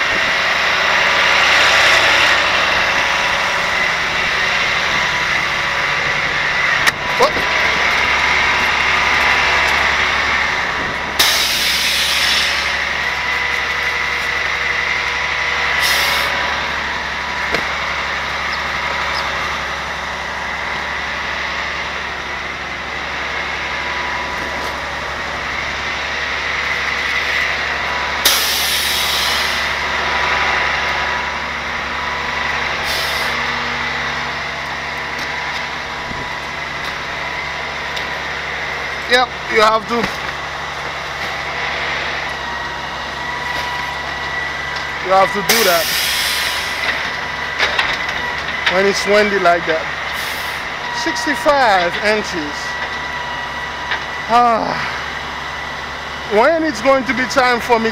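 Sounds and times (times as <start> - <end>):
diesel engine idling: 0.0 - 57.9
sudden air hisses: 11.1 - 13.0, 15.8 - 16.4, 28.2 - 29.8, 32.7 - 33.5, 45.5 - 47.0.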